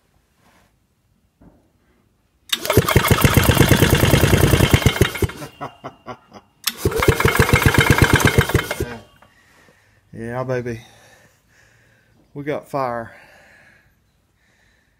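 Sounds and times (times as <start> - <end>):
engine cranking by starter: 2.5 - 5.7, 6.6 - 9.2.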